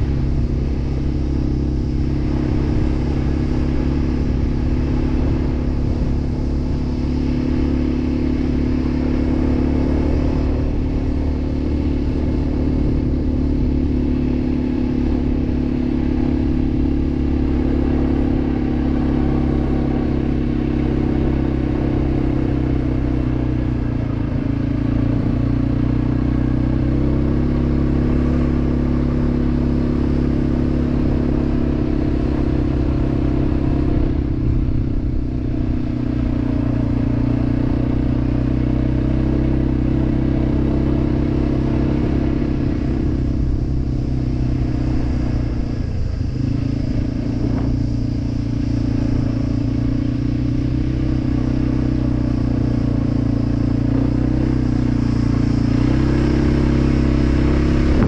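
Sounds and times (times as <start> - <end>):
quad bike engine running: 0.0 - 58.0.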